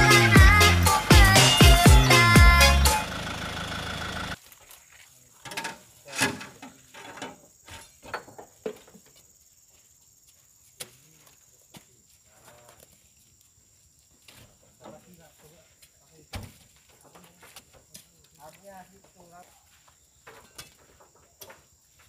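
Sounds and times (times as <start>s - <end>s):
background music: 0.0s - 3.2s.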